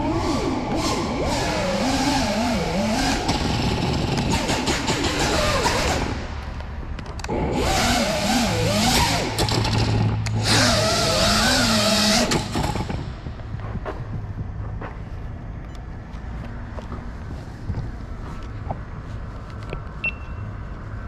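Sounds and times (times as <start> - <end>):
drone motors whining: 0.0 - 6.3, 7.2 - 14.6.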